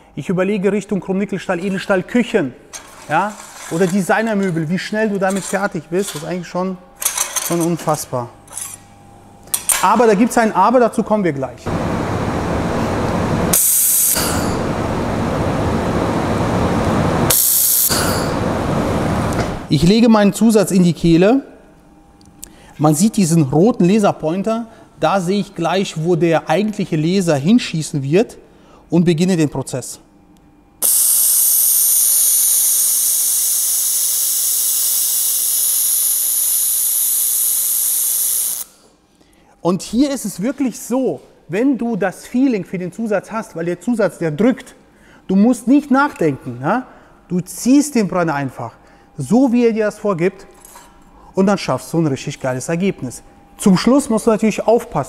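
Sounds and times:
loud rushing machine noise: 0:11.7 - 0:19.7
bright high hiss: 0:13.5 - 0:14.6, 0:30.8 - 0:38.8.

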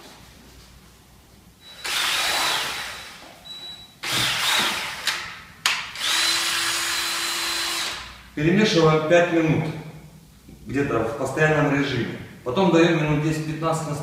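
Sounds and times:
drill mixing paste in bucket: 0:01.6 - 0:03.3, 0:04.0 - 0:05.2, 0:06.0 - 0:08.2.

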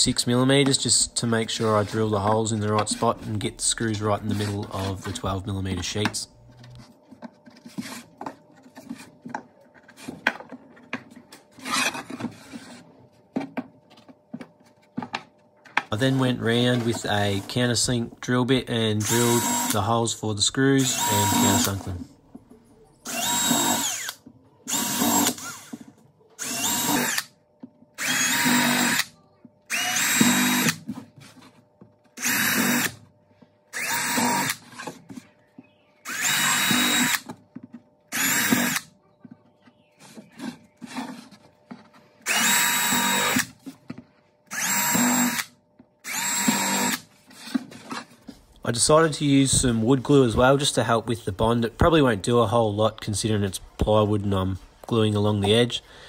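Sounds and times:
cordless drill boring into plywood: 0:19.0 - 0:19.8, 0:20.8 - 0:21.8, 0:23.1 - 0:25.8, 0:26.4 - 0:27.3, 0:28.0 - 0:29.1, 0:29.7 - 0:30.8, 0:32.2 - 0:33.0, 0:33.7 - 0:34.6, 0:36.0 - 0:37.3, 0:38.1 - 0:38.8, 0:42.2 - 0:43.5, 0:44.5 - 0:47.0.

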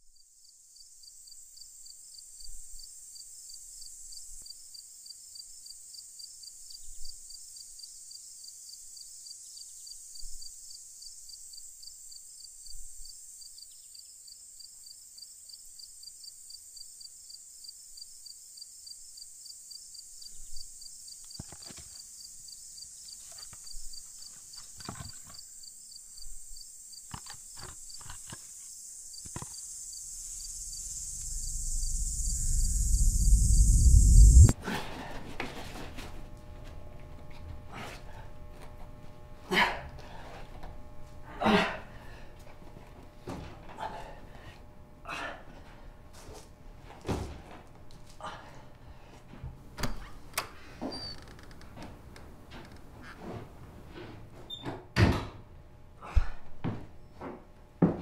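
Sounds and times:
night insects trilling: 0:00.2 - 0:34.6.

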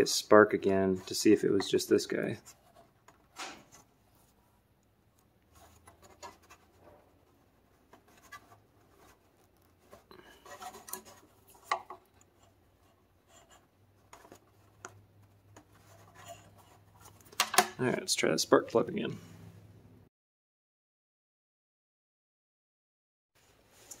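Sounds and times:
wires rustling and clicking: 0:01.0 - 0:17.8, 0:23.7 - 0:24.0.

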